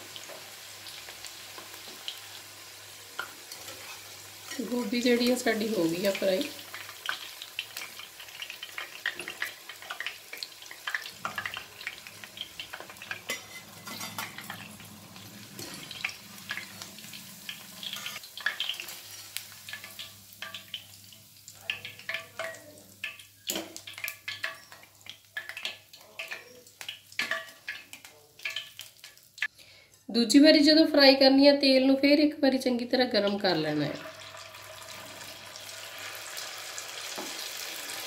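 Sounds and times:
food sizzling in hot oil: 0:00.0 - 0:29.5, 0:33.2 - 0:38.0
wire skimmer clinking against pan: 0:13.1 - 0:14.6.

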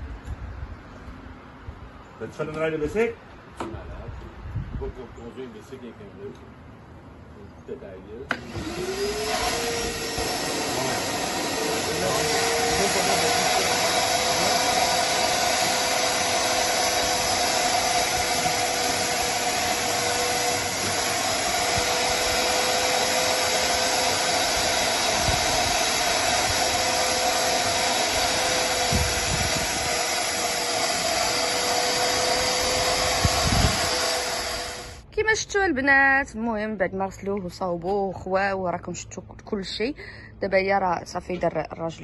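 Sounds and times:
shop vacuum motor whine: 0:08.3 - 0:35.0.

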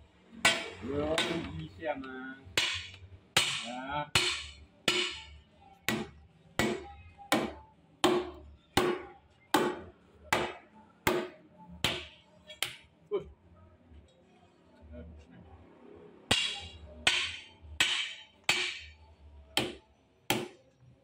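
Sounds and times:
hammer striking metal: 0:02.6 - 0:05.3, 0:16.3 - 0:19.0.

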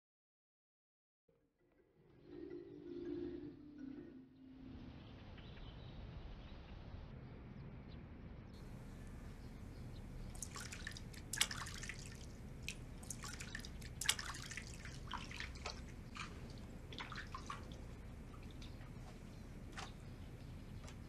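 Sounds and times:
water splashing in basin: 0:10.3 - 0:18.8.

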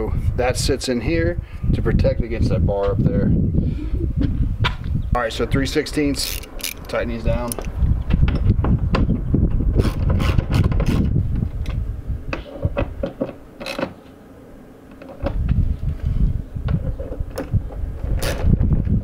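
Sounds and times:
wind rumble on microphone: 0:00.0 - 0:13.4, 0:15.1 - 0:19.0
hand ratchet clicking: 0:06.2 - 0:07.8.

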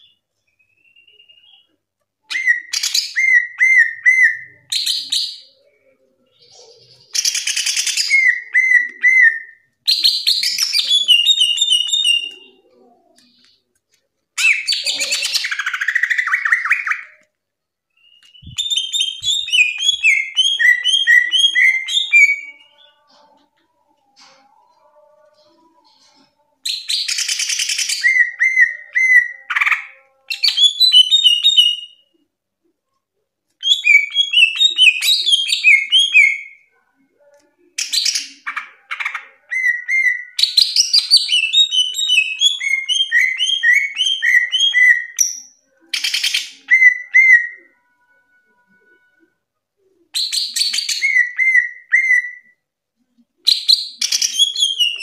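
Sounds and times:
bird singing whistled chirps: 0:00.0 - 0:01.7, 0:17.9 - 0:23.0.

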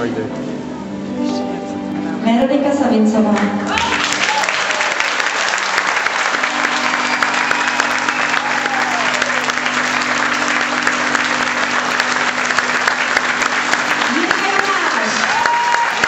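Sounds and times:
large audience applauding: 0:03.3 - 0:16.0.

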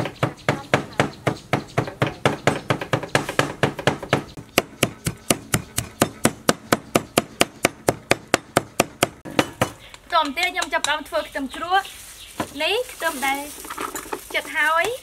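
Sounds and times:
knife chopping on wooden board: 0:00.0 - 0:09.8.

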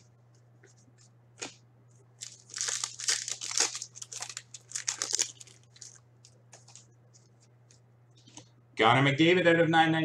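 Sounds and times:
wrapper tearing and crinkling: 0:02.2 - 0:06.9.

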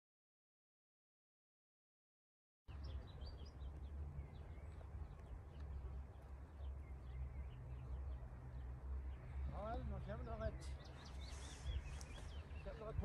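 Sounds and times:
small birds chirping: 0:02.7 - 0:13.0
wind rumbling on microphone: 0:02.7 - 0:13.0.

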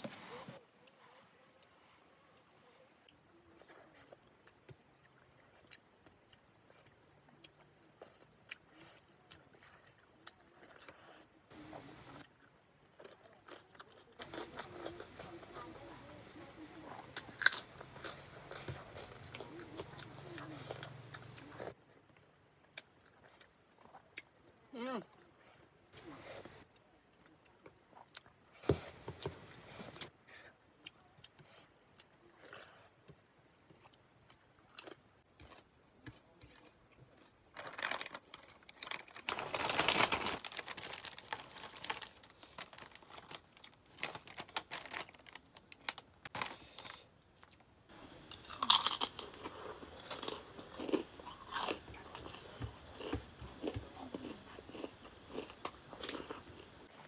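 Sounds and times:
chewing food: 0:00.4 - 0:57.0
crackers crunching: 0:03.6 - 0:24.1, 0:33.7 - 0:57.0
plastic snack packet rustling: 0:37.5 - 0:47.5.

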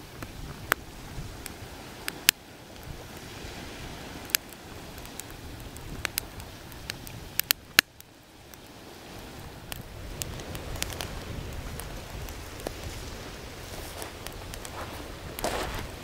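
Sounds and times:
fire hissing: 0:00.0 - 0:16.0
wood cracking and popping: 0:04.2 - 0:08.7, 0:09.7 - 0:13.0.

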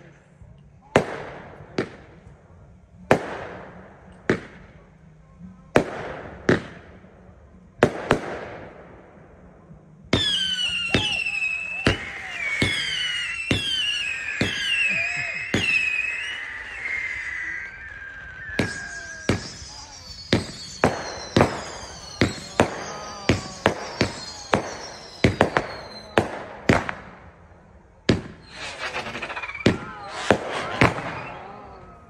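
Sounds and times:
firework bangs: 0:03.1 - 0:04.8, 0:05.7 - 0:07.0, 0:07.8 - 0:09.0, 0:10.1 - 0:27.4, 0:28.1 - 0:32.0
falling firework whistles: 0:10.1 - 0:32.0.

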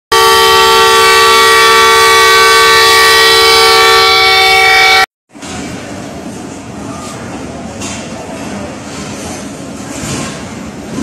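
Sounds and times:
locomotive air horn blast: 0:00.1 - 0:05.1.

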